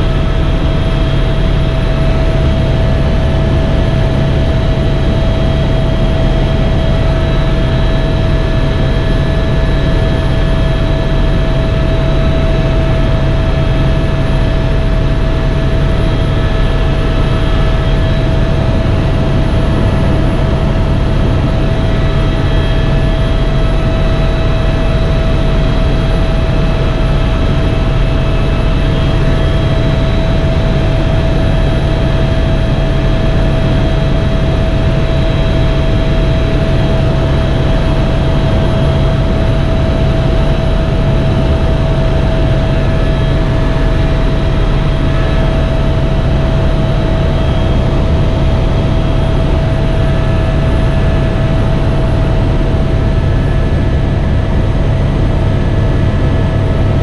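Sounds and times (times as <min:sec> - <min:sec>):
helicopter engine and rotor: 0:00.0 - 0:57.0.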